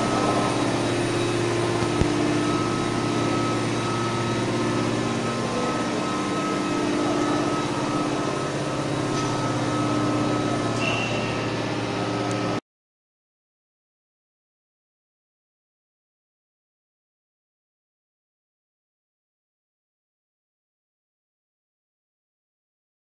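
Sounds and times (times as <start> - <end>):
thin high tone: 0.0 - 12.3
industrial machinery hum: 0.0 - 12.6.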